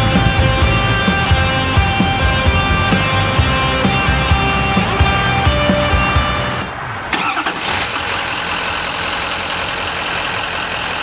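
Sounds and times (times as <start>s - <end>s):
diesel engine starting and idling: 0.0s - 11.0s.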